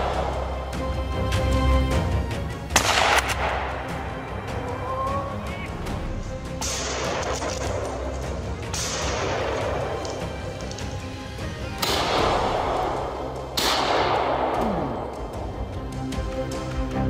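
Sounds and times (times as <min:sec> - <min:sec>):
background music: 0:00.0 - 0:17.0
gunshots with echo: 0:02.7 - 0:04.2, 0:06.6 - 0:10.9, 0:11.8 - 0:15.2.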